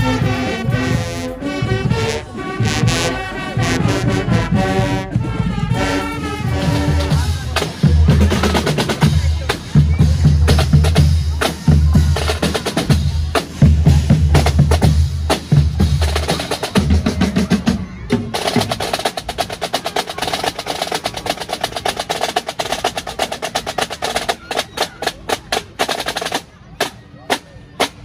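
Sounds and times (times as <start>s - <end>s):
bass drums pounding: 6.4s - 18.3s
fast snare drumming: 6.4s - 28.0s.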